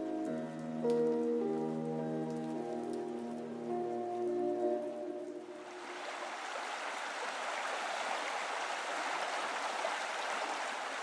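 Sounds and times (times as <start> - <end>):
brook flowing over stones: 5.5 - 11.0.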